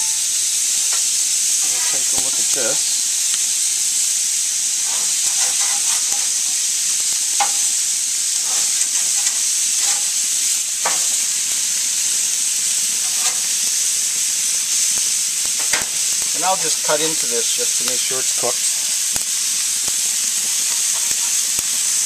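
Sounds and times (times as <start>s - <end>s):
chicken sizzling on grill: 0.0s - 22.0s
metal utensils clinking and scraping: 4.8s - 6.4s, 13.0s - 13.5s.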